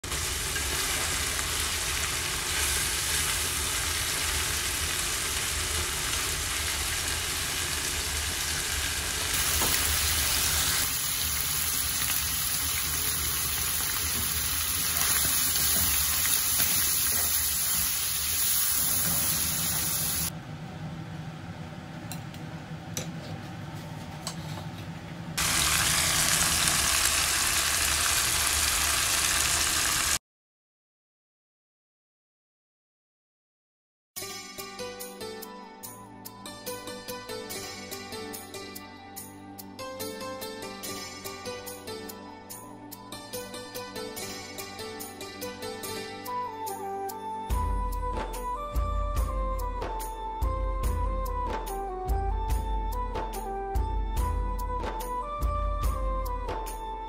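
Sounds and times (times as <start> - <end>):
food sizzling in a pan: 0.1 - 20.3, 25.4 - 30.2.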